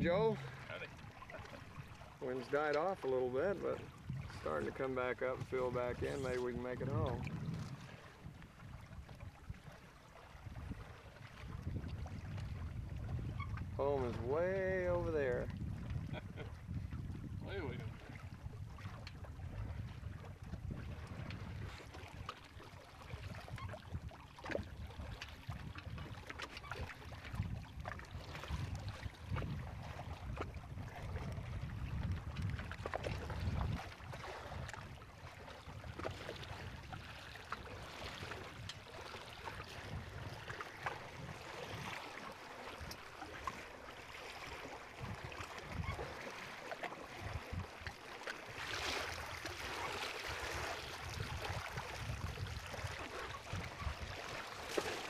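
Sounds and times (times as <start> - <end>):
wind buffeting microphone: 0.0 - 2.6, 3.3 - 22.3, 23.0 - 42.1, 44.5 - 46.2, 47.2 - 47.9, 50.4 - 54.4
rush of water: 0.0 - 55.0
water lapping against hulls: 0.0 - 55.0.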